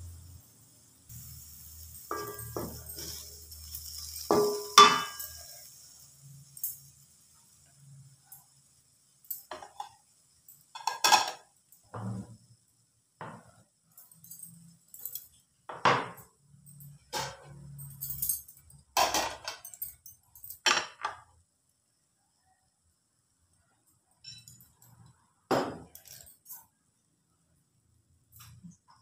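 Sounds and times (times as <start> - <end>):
kitchen items clinking and clattering: 1.2 - 7.0, 9.2 - 12.4, 13.2 - 21.3, 24.2 - 26.7.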